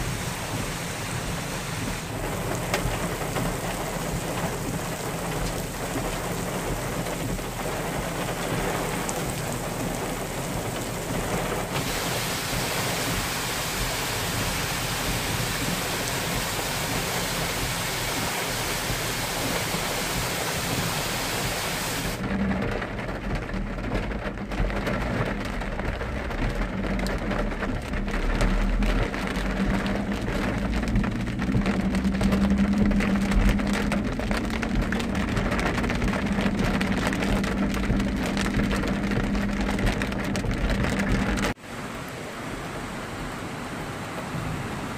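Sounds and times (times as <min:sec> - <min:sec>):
heavy rain hissing: 0:00.0 - 0:22.2
runoff water pouring down rock: 0:00.0 - 0:22.8, 0:23.7 - 0:41.6
car driving on wet road: 0:00.0 - 0:44.9.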